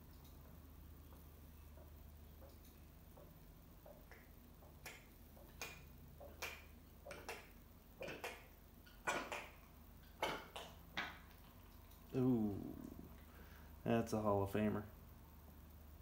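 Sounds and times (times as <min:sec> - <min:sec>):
cat retching: 0:04.1 - 0:11.5.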